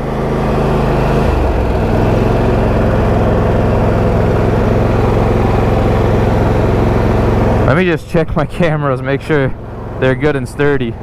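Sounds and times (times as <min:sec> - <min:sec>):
lawn tractor engine running: 0:00.0 - 0:11.0.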